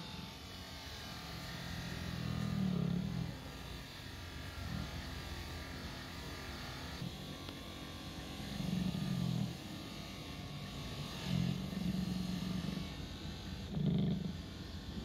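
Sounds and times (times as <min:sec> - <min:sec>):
polishing motor humming: 0:00.0 - 0:15.0.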